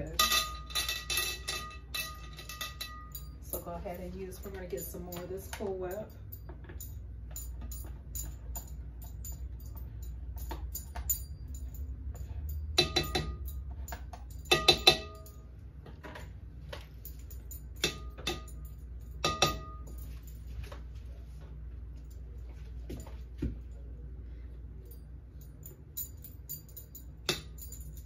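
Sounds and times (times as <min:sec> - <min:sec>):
spoon clinking on glass bowl: 0:12.5 - 0:13.6, 0:14.3 - 0:15.3.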